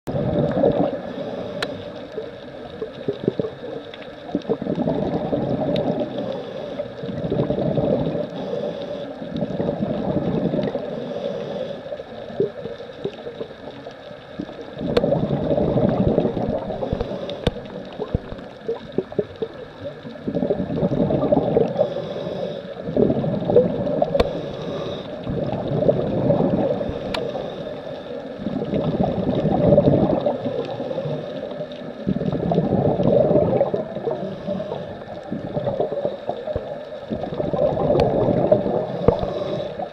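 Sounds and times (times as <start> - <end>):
gurgling exhaust bubbles: 0.1 - 1.2, 2.6 - 6.2, 7.0 - 8.4, 9.3 - 11.0, 14.4 - 22.0, 22.8 - 27.5, 28.4 - 39.9
faint sharp clicks: 1.4 - 4.5, 11.8 - 15.3, 16.2 - 20.3, 23.8 - 25.7, 26.8 - 28.8, 37.9 - 38.2, 38.9 - 39.9.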